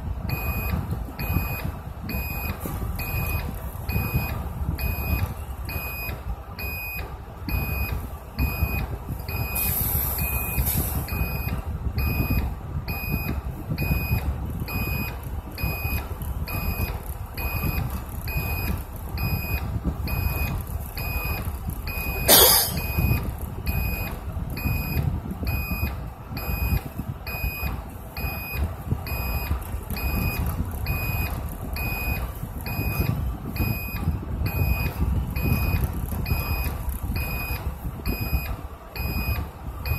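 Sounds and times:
bus engine rumble: 0.0s - 39.9s
reversing alarm beeping: 0.3s - 39.9s.

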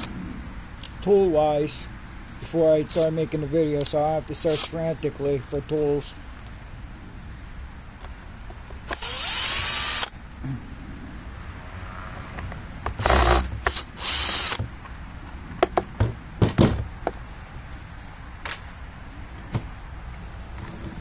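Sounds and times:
power drill spinning: 8.9s - 10.1s, 13.0s - 14.6s.

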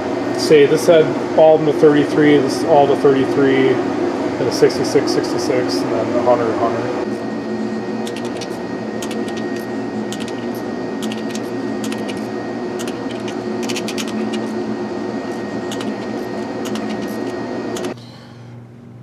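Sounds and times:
loud mechanical hum: 0.0s - 19.0s.

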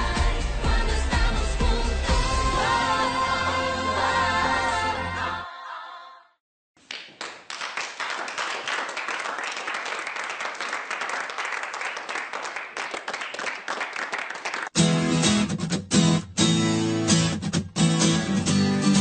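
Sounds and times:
crowd applauding: 6.8s - 14.8s.

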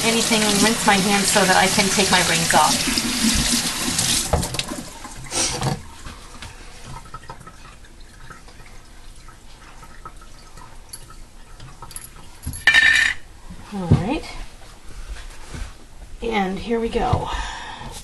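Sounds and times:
faint water drips: 6.0s - 12.4s.

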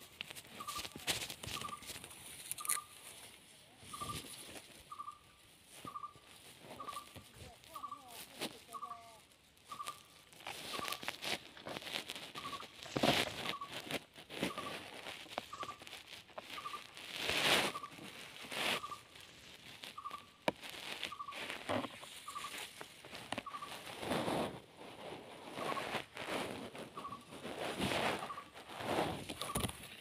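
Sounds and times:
rustling in dry grass: 0.0s - 30.0s
bird calling: 0.4s - 11.3s, 12.3s - 19.2s, 19.8s - 23.9s, 25.6s - 26.1s, 26.9s - 27.4s, 28.1s - 28.6s.

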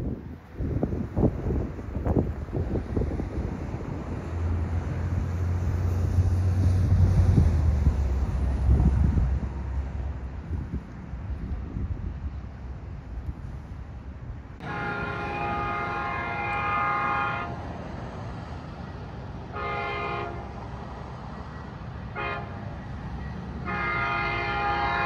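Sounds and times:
low train rumble: 0.0s - 25.0s
locomotive air horn: 14.6s - 17.7s, 19.5s - 20.7s, 22.1s - 22.8s, 23.6s - 25.0s.

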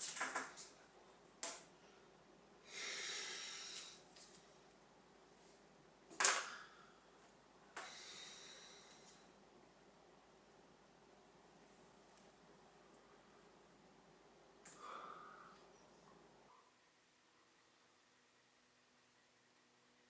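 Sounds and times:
person exhaling with sighs: 2.6s - 4.0s, 7.8s - 9.2s, 14.7s - 15.6s.

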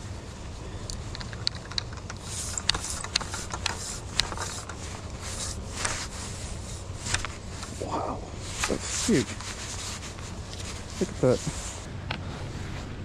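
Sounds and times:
pole sliding and rustling: 0.0s - 13.0s
extension pole clicking: 0.8s - 7.8s, 8.4s - 11.8s.

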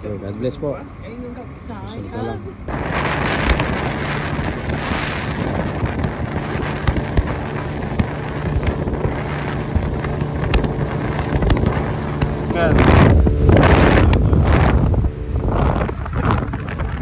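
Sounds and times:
boat motor running: 0.0s - 17.0s
wind on microphone: 2.6s - 17.0s
short thumps: 4.5s - 15.2s.

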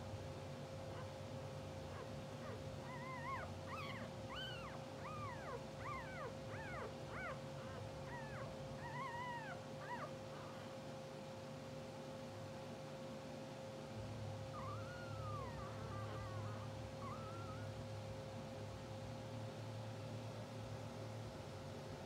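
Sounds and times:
faint hum: 0.0s - 22.0s
puppies whimpering and squeaking: 1.9s - 10.8s, 14.5s - 17.8s.

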